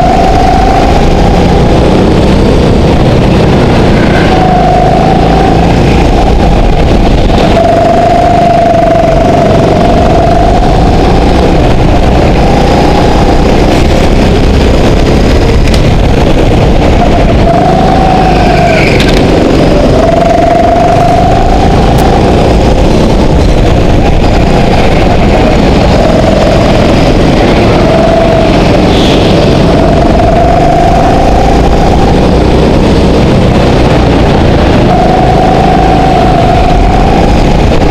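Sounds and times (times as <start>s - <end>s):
go-kart engine running: 0.0s - 37.9s.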